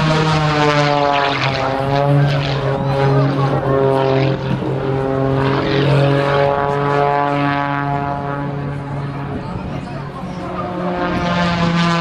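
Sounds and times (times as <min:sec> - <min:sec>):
propeller plane engine droning: 0:00.0 - 0:12.0.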